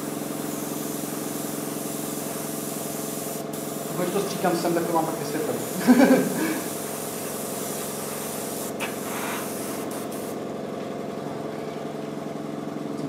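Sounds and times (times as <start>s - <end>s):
airbrush hissing: 0.0s - 10.4s
compressor humming: 0.0s - 13.0s.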